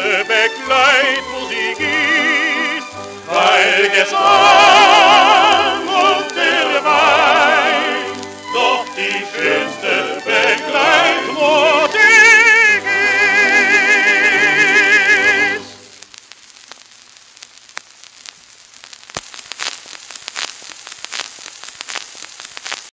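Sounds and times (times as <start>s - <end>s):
tenor singing with chorus and orchestra: 0.0s - 15.8s
record surface crackle: 0.0s - 22.9s.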